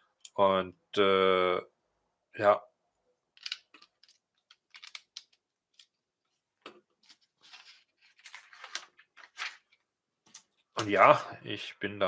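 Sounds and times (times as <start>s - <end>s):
plastic bricks clicking and rattling: 3.4s - 5.9s.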